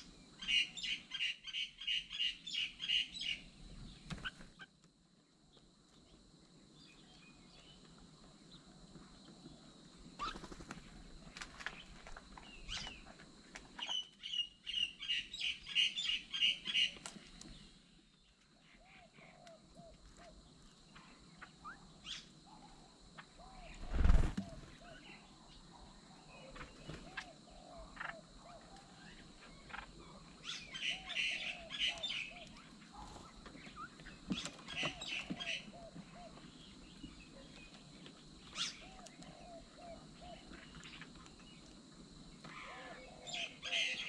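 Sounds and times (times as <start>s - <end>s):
birds chattering harshly: 10.2s - 10.8s, 11.8s - 18.0s, 26.4s - 37.8s, 42.4s - 44.0s.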